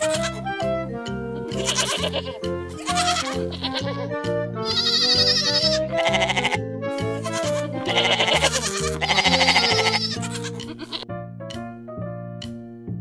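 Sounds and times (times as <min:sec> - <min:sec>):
goats bleating: 0:00.0 - 0:00.5, 0:01.5 - 0:11.0
background music with steady beat: 0:00.0 - 0:13.0.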